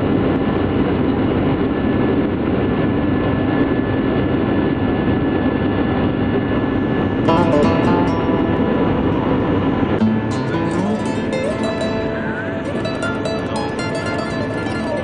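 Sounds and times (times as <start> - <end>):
jet engines rushing with whine: 0.0 - 15.0
music: 6.6 - 15.0.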